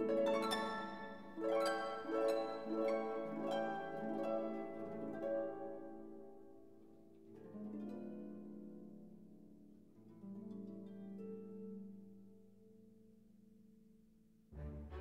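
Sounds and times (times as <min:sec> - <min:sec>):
plucked harp-like strings melody: 0:00.0 - 0:09.4.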